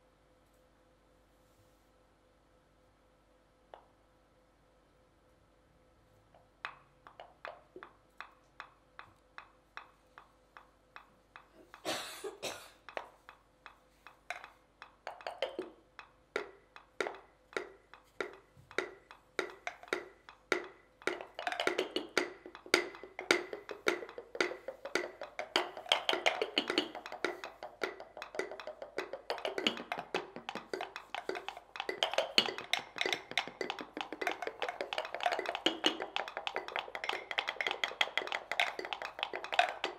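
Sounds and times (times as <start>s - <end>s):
wooden pestles tapping mortars: 6.6s - 39.9s.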